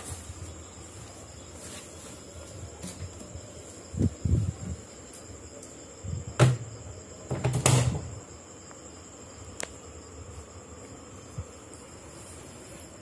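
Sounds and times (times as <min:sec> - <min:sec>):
washing machine door knocks: 0:06.4 - 0:06.7, 0:07.3 - 0:08.1.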